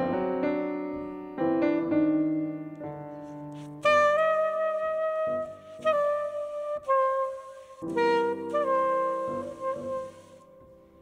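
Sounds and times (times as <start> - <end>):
piano chord: 0.0 - 7.1
soprano saxophone: 3.1 - 11.0.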